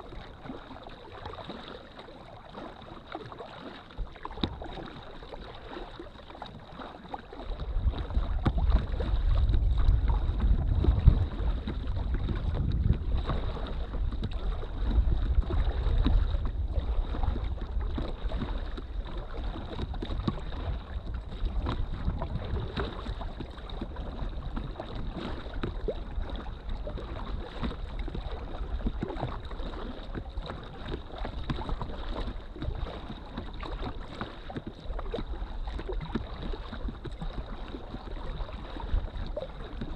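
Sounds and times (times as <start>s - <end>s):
water lapping against kayak hull: 0.0s - 39.9s
wind buffeting microphone: 7.5s - 34.0s.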